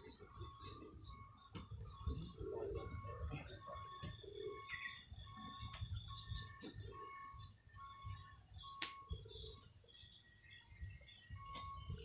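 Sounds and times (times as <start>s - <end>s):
birds calling: 0.0s - 12.0s
high insect whine: 0.0s - 12.0s
low cooing calls: 2.0s - 8.0s.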